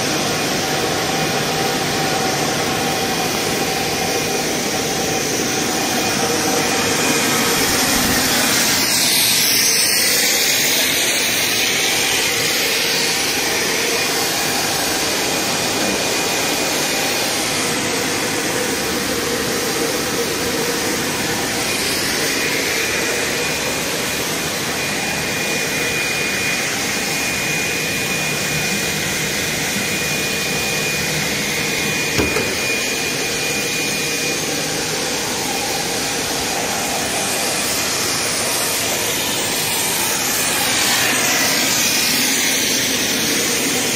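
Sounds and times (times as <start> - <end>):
drone of motors and air blowers: 0.0 - 43.9
short knock: 32.1 - 32.7.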